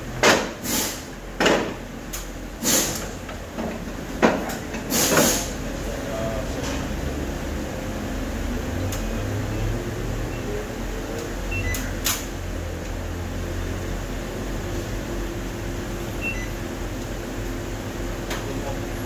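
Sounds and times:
low machine hum: 5.5 - 19.0.

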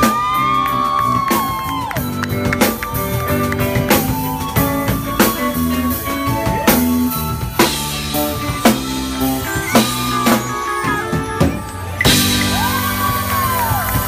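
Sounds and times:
bass and keyboard notes: 0.0 - 14.0
drum kit beat: 0.0 - 14.0
electric guitar: 0.0 - 14.0
live band playing: 0.0 - 14.0.

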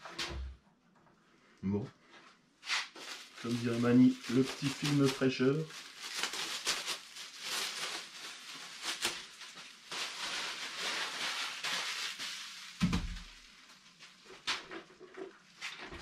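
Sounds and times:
plastic bag crinkling: 2.9 - 15.5.

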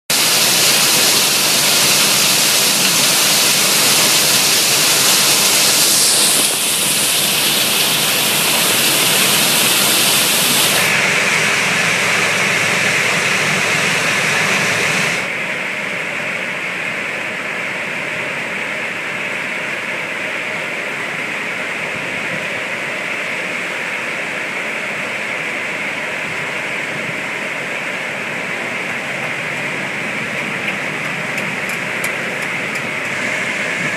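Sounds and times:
wood chips rushing into railcar: 0.1 - 15.3.

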